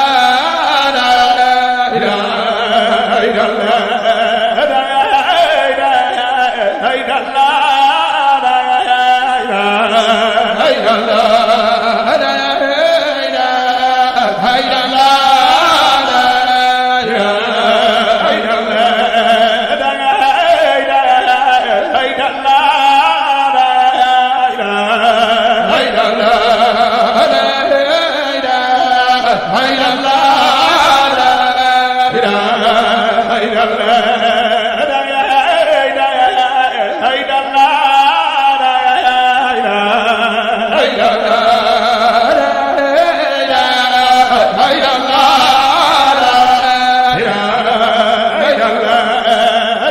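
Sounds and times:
man chanting: 0.0 - 49.9.

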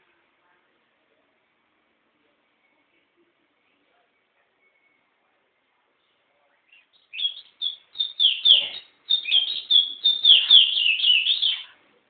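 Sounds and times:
songbird singing: 6.0 - 11.8.

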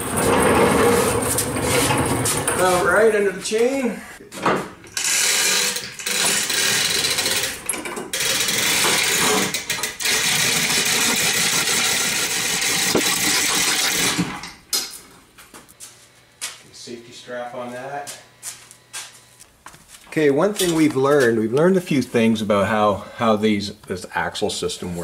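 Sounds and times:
chain hoist rattling: 4.9 - 14.3.

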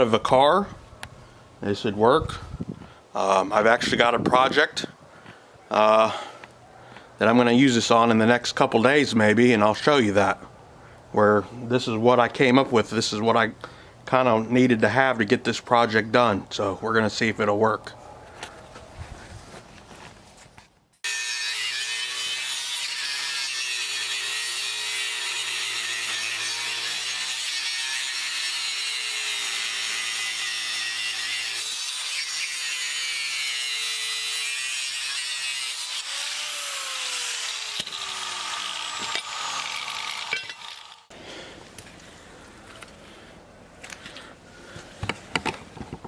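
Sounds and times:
angle grinder grinding steel: 21.0 - 41.2.

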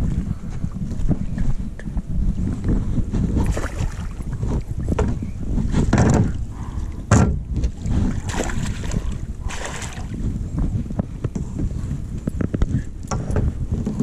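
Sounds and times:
wind rumble on microphone: 0.0 - 14.0
fish splashing at the surface: 8.2 - 10.1.

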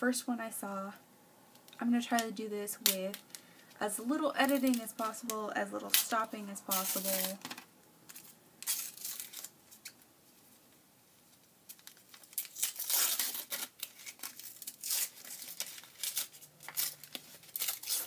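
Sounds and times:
wrapper crinkling and tearing: 4.4 - 10.0, 11.6 - 18.0.

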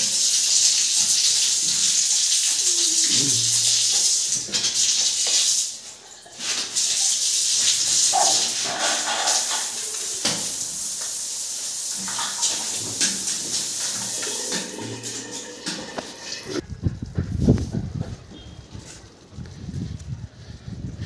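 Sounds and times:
shower water hissing: 0.0 - 16.6.

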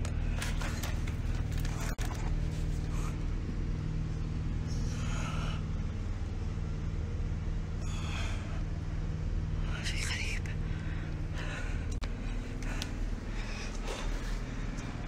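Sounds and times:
steady low hum: 0.0 - 15.0
person breathing heavily: 4.6 - 6.4, 7.7 - 15.0.

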